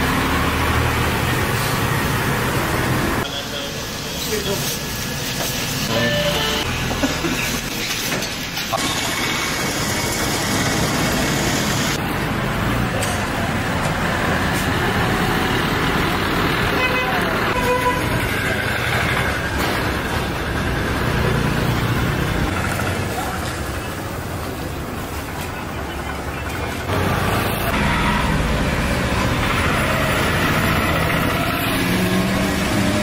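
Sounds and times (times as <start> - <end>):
vehicle engines running: 0.0 - 33.0
car horns tooting: 5.9 - 6.9, 16.7 - 18.2.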